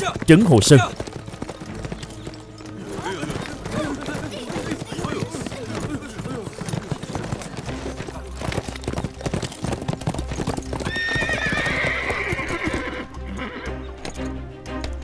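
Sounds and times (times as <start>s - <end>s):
horse hooves clopping: 0.0s - 15.0s
horse whinnying: 10.7s - 13.8s.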